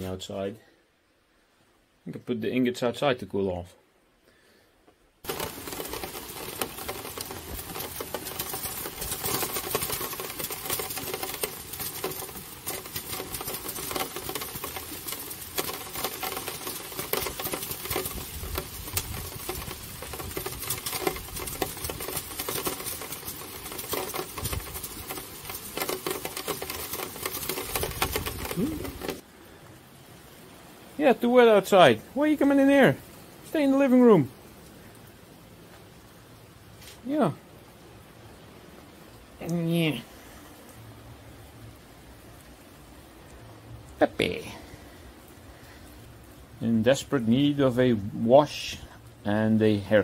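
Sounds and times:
steady rain pattering: 0.0s - 50.0s.

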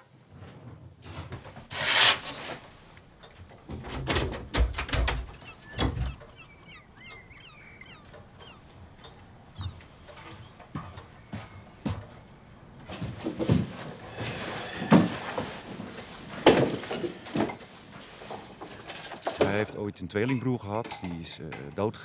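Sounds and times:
small birds chirping: 4.9s - 12.9s.

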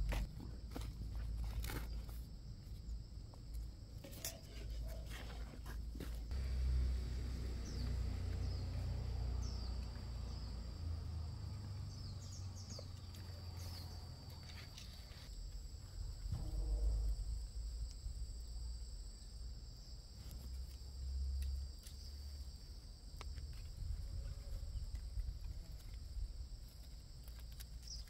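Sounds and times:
insects droning: 0.0s - 28.0s
bird chirps: 7.6s - 10.6s, 11.6s - 15.0s.

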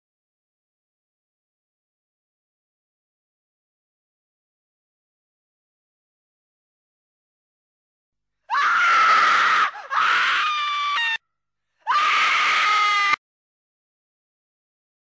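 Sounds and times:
high-pitched screams: 8.5s - 11.2s, 11.8s - 13.2s.

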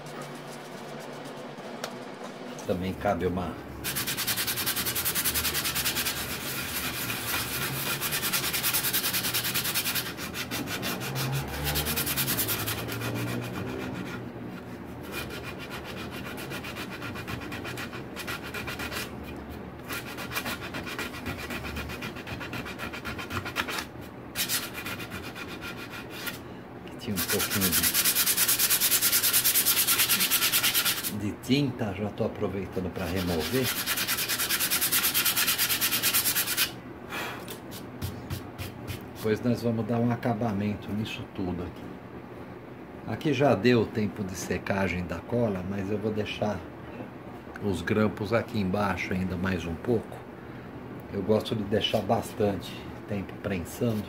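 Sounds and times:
sanding disc rubbing on wood: 0.0s - 2.1s, 3.8s - 19.3s, 19.9s - 26.4s, 27.1s - 31.2s, 33.0s - 36.8s.

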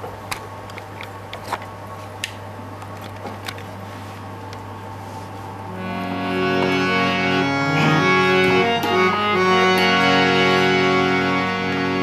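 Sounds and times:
harmonium melody: 5.7s - 12.0s.

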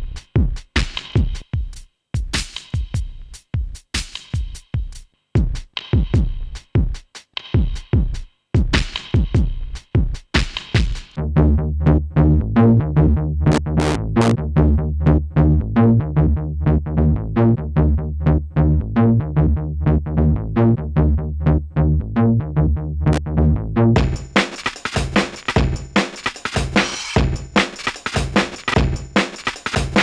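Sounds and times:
drum machine hits: 0.0s - 7.0s, 7.6s - 11.2s, 24.0s - 30.0s
synth bass line: 11.2s - 24.4s.

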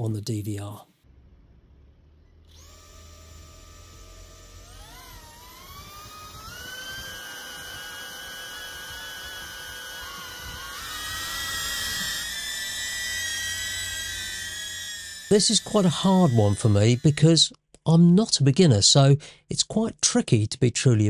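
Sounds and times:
drone motors whining: 2.1s - 17.5s.

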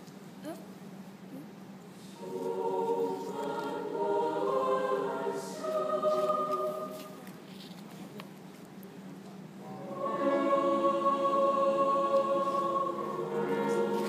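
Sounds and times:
children's choir singing: 2.0s - 7.4s, 9.6s - 14.0s.

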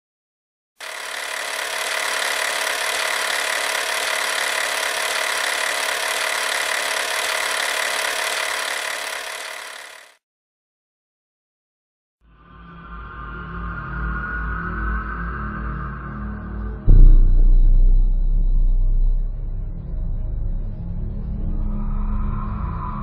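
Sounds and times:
film projector whirring: 0.8s - 10.2s.

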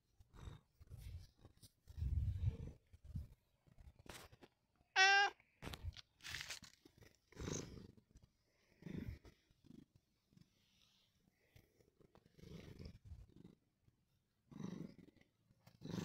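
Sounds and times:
cat meowing: 5.0s - 5.4s.

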